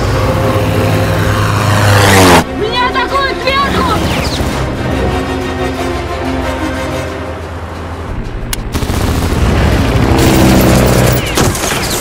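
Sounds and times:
rapid machine-gun fire: 8.7 - 11.3.

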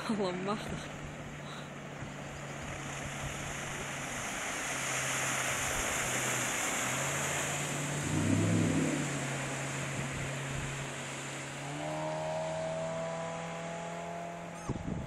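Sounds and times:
outboard motor drone: 0.0 - 15.0
water rushing past hull: 0.0 - 15.0.

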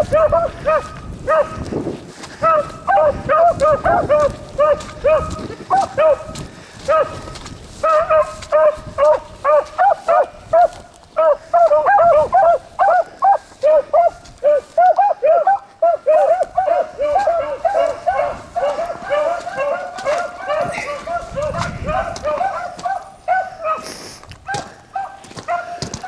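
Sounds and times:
hounds baying: 0.0 - 26.0.

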